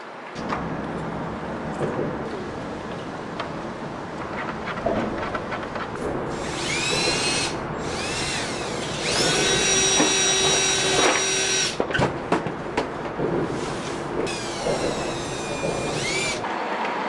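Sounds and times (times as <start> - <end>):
electric drill whining: 6.3 - 11.8, 14.3 - 16.4
knocks: 14.2 - 16.4.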